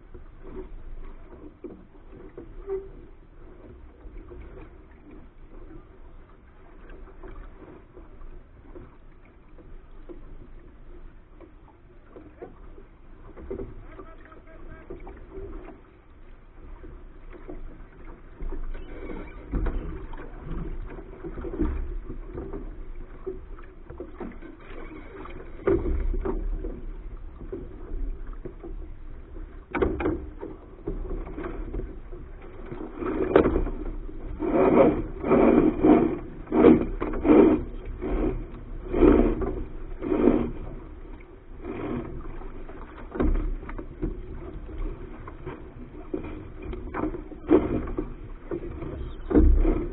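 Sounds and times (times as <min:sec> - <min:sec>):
water rushing along hull: 0:00.0 - 0:49.9
sharp knocks against hull: 0:19.4 - 0:28.8, 0:29.6 - 0:49.9.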